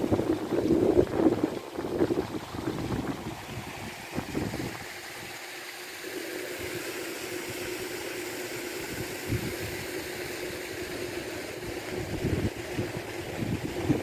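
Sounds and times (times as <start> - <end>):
wind gusts on microphone: 0.0 - 5.0, 8.9 - 9.9, 11.8 - 14.0
paddlewheel aerator motor humming: 0.0 - 14.0.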